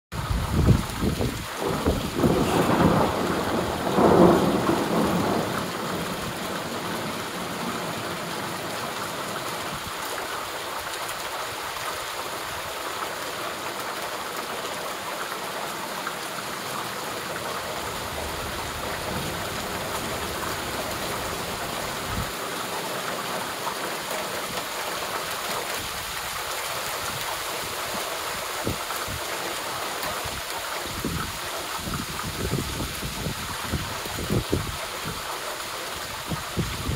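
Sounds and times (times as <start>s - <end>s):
steady rainfall: 0.1s - 36.9s
thunder rolling: 0.5s - 9.8s, 17.1s - 22.4s.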